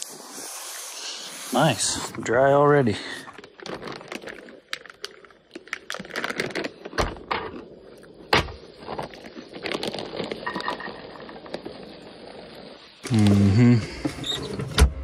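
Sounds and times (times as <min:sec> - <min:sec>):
food packaging crinkling: 0:03.0 - 0:13.4.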